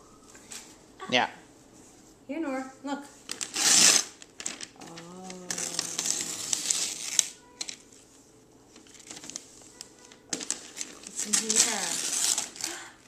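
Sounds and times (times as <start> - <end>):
wrapping paper crinkling: 3.2 - 13.0
person humming: 4.8 - 6.9.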